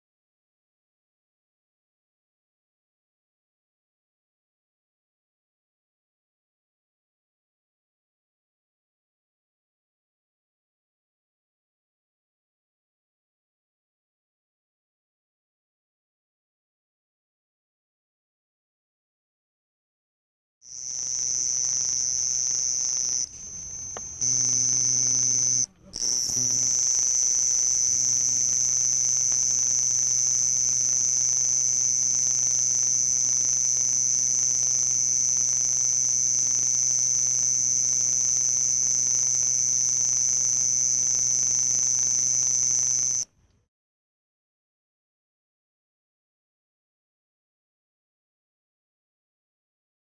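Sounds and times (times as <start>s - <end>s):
cricket trilling: 20.6s - 43.3s.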